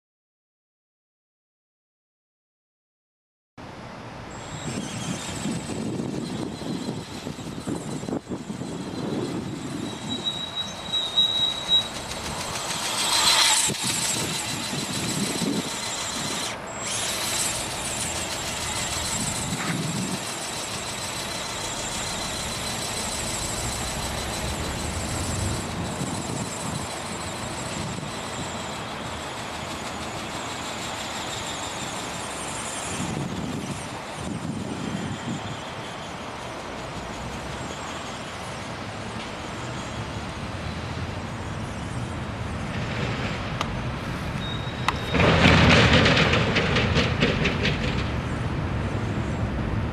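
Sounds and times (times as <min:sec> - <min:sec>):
thin high-pitched whine: 0:04.3 - 0:42.2
wind buffeting microphone: 0:04.4 - 0:10.9, 0:11.8 - 0:28.8, 0:32.8 - 0:35.6.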